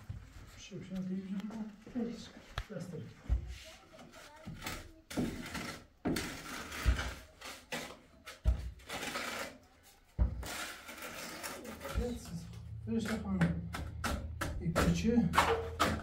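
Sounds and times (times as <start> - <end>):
trowel scraping plaster: 4.1 - 13.2.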